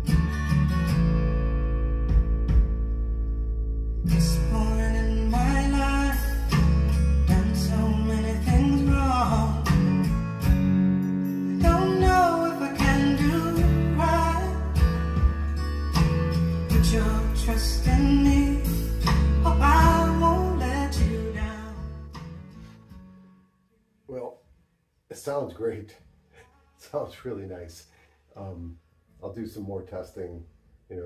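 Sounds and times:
song over speakers: 4.0 - 22.7.

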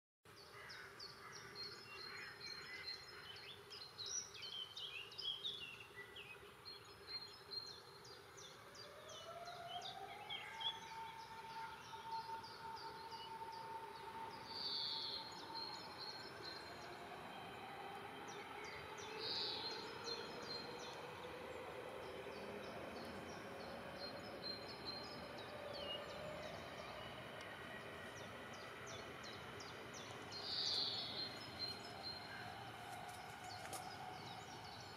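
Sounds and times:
small birds chirping and singing: 0.4 - 34.9
distant siren: 8.5 - 34.9.

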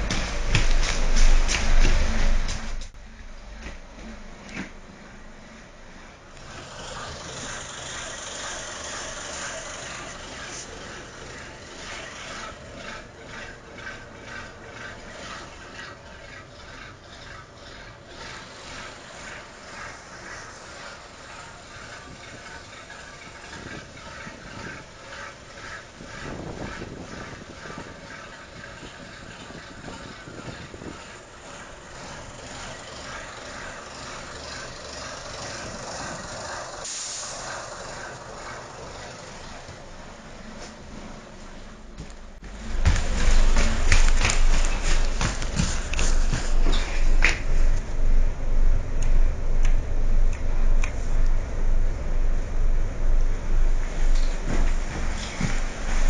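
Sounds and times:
machine running: 6.3 - 56.0
rhythmic metal scraping: 6.4 - 40.7, 42.4 - 56.0
wind on microphone: 23.1 - 31.4
loud hiss: 36.8 - 37.6.

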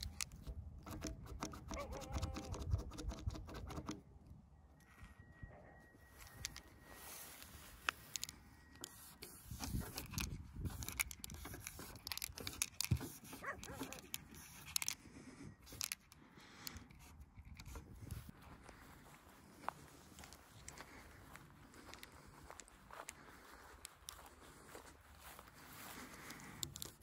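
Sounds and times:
marker scraping and squeaking on metal: 0.0 - 4.0, 6.2 - 16.1.

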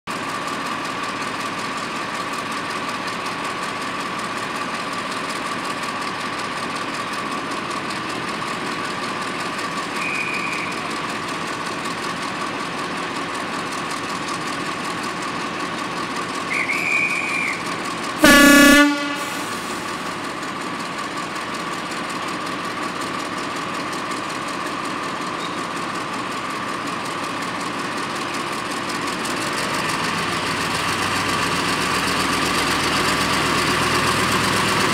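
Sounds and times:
diesel locomotive idling: 0.1 - 34.9
short high whistle blasts: 10.0 - 10.8, 16.5 - 19.8
locomotive horn blast: 18.2 - 20.2.

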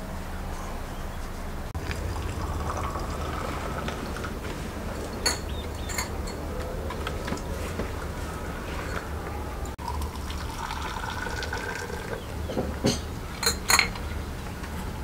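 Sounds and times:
hot water pouring into glass: 1.8 - 4.4, 9.8 - 12.2
tea glasses clinking on metal tray: 5.2 - 6.4, 12.5 - 14.0.

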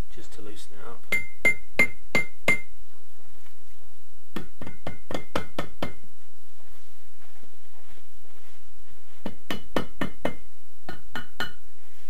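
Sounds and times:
rubber mallet knocking on metal: 4.4 - 6.0, 9.2 - 11.6.

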